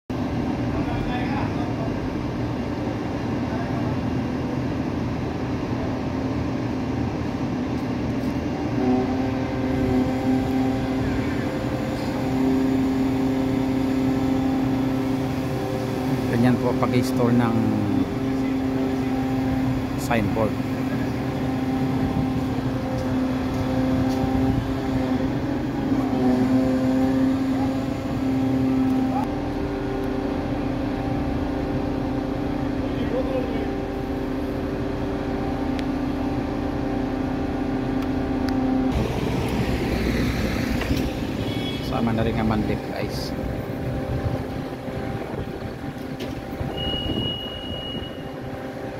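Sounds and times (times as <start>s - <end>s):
crane engine running: 0.1s - 48.9s.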